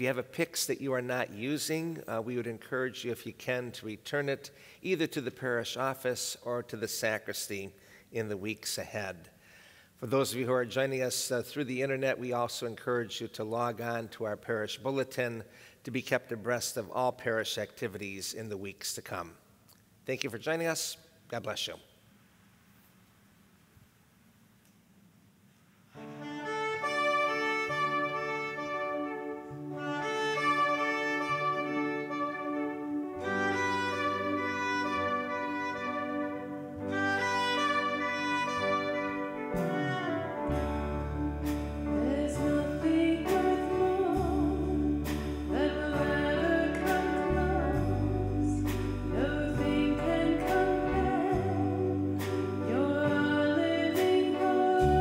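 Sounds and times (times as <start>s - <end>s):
church organ chords: 26.0s - 55.0s
deep organ pedal notes: 26.0s - 55.0s.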